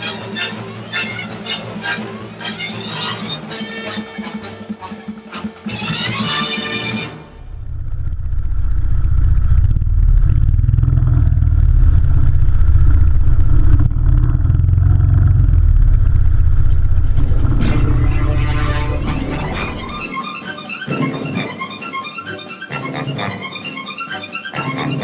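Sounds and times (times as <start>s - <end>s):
music: 0.0s - 7.6s, 17.2s - 25.0s
go-kart engine rumbling: 3.9s - 20.1s.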